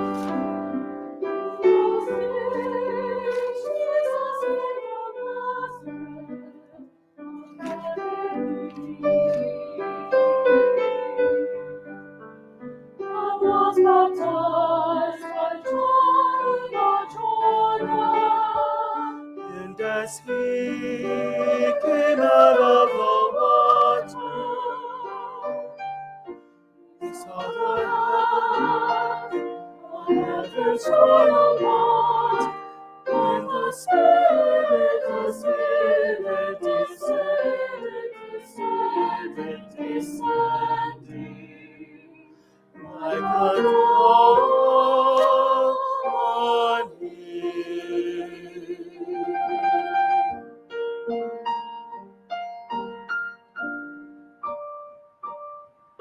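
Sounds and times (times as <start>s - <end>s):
church choir singing: 0.0s - 26.4s, 27.0s - 50.4s
piano accompaniment: 0.0s - 56.0s.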